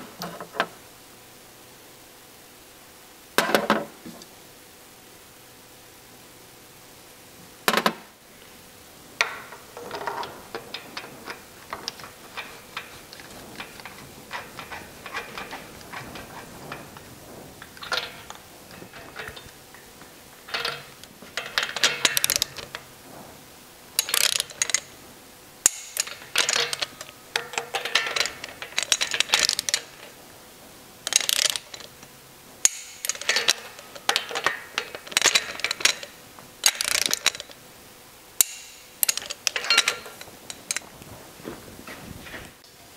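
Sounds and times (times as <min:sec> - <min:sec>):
hand ratchet clicking: 0:09.2 - 0:19.6, 0:20.5 - 0:22.8, 0:24.0 - 0:24.9, 0:25.6 - 0:30.2, 0:31.1 - 0:32.0, 0:32.6 - 0:37.6, 0:38.4 - 0:40.8
metal tools clinking: 0:09.2 - 0:22.9, 0:24.0 - 0:25.0, 0:25.6 - 0:30.2, 0:31.1 - 0:32.0, 0:32.6 - 0:37.6, 0:38.4 - 0:40.9.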